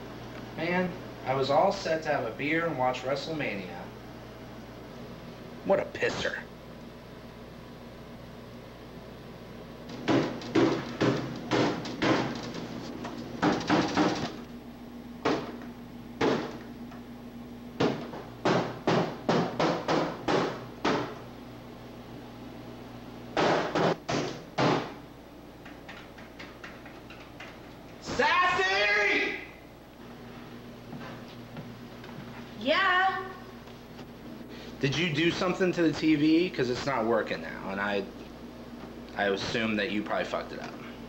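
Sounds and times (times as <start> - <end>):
low steady hum: 0.0 - 41.0
knocks on wooden cabinet: 10.0 - 12.5, 13.4 - 14.4, 15.2 - 15.6, 16.2 - 16.6, 17.8 - 21.2, 23.4 - 25.0.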